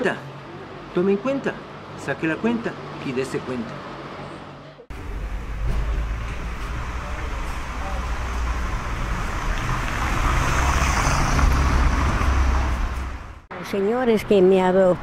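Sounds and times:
vehicle engine rumble and tyre noise: 0:03.7 - 0:13.5.

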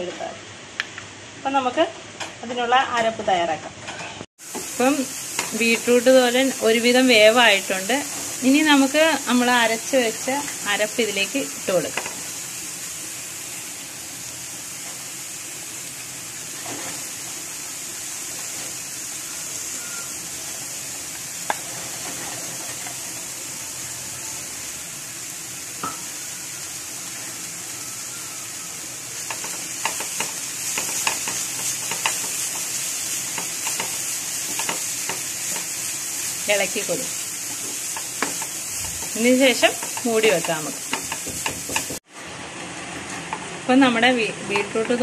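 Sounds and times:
stir-fry sizzling in a frying pan: 0:00.0 - 0:45.0
wooden spatula scraping a pan: 0:21.5 - 0:23.1.

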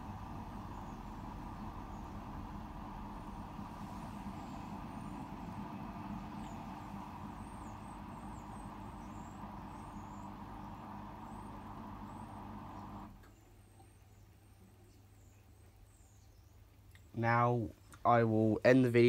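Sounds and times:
water rushing through pump: 0:00.0 - 0:13.2
washing machine drain pump humming: 0:00.0 - 0:13.3.

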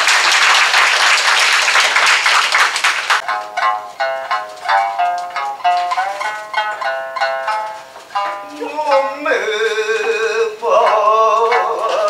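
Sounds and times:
shamisen plucking: 0:03.2 - 0:12.0
person singing long held notes: 0:08.4 - 0:12.0.

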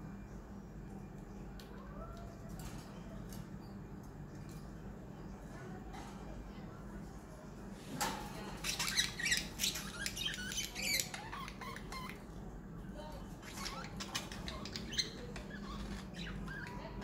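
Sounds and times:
low steady hum: 0:00.0 - 0:17.0
budgerigars chirping: 0:08.6 - 0:12.2, 0:13.4 - 0:16.9.

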